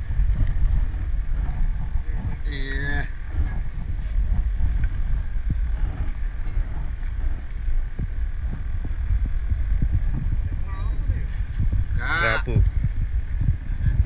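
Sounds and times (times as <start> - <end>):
wind buffeting the microphone: 0.0 - 14.0.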